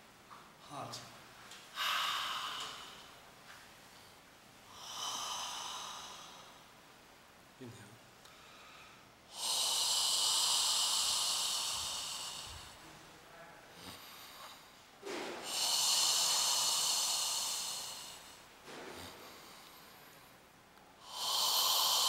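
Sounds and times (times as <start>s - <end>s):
person exhaling with a hiss: 1.7s - 3.2s, 4.7s - 6.7s, 8.3s - 12.9s, 13.8s - 20.3s, 21.0s - 22.0s.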